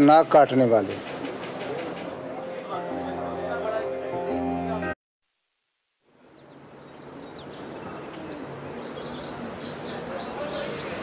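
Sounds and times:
birds chirping: 6.2s - 11.0s.

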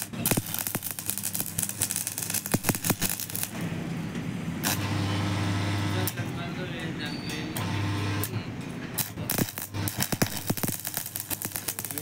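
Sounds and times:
welding arc crackling and popping: 0.0s - 3.8s, 4.6s - 6.4s, 7.6s - 8.4s, 9.0s - 12.0s.

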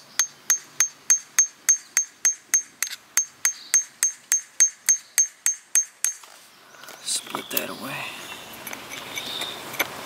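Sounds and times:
hammer tapping chisel on rock: 0.2s - 6.3s.

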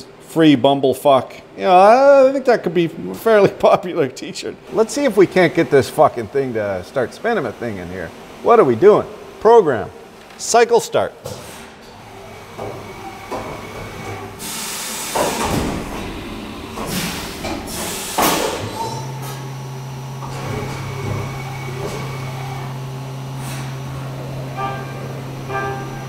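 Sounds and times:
low machine hum: 0.0s - 10.4s, 11.8s - 14.5s, 15.4s - 26.0s
coolant spraying hiss: 11.3s - 24.6s.

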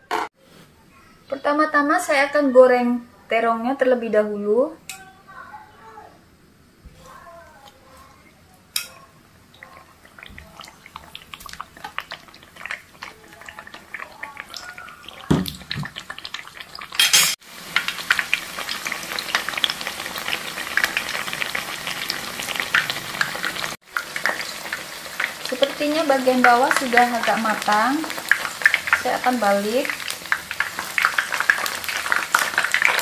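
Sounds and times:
eggplant sizzling in hot oil: 8.8s - 33.0s
oil crackling: 9.5s - 33.0s.

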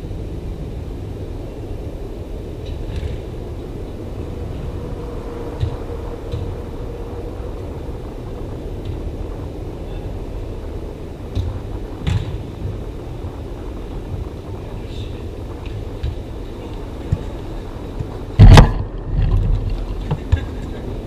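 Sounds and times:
low background rumble: 0.0s - 21.0s
soccer ball being kicked: 11.3s - 12.7s, 18.0s - 19.0s.

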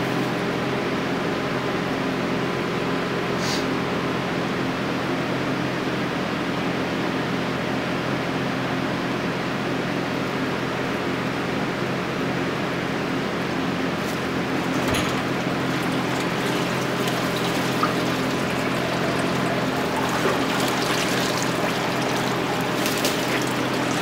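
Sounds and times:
steady background hum: 10.8s - 24.0s
water pouring off object: 14.0s - 24.0s
water sloshing and splashing: 14.0s - 24.0s.

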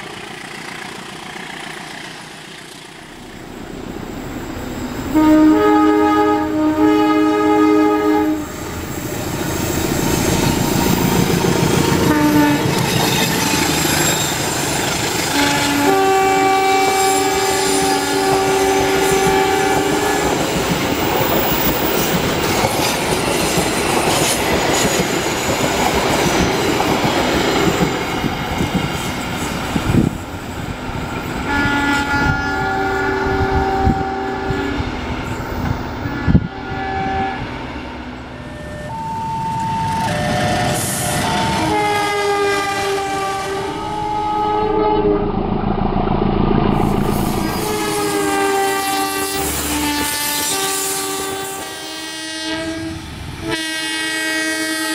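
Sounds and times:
train passing with wheel clatter: 0.0s - 54.9s
locomotive air horn blasts: 5.1s - 9.0s, 12.0s - 12.8s, 15.3s - 20.6s, 31.4s - 34.9s, 36.0s - 37.6s, 38.4s - 45.3s, 46.7s - 54.9s.

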